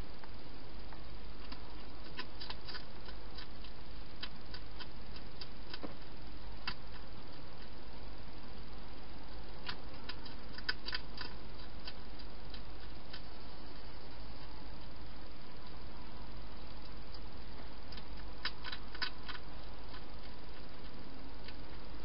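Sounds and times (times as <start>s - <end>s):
steady hiss: 0.0s - 22.0s
hedgehog crunching food: 1.0s - 22.0s.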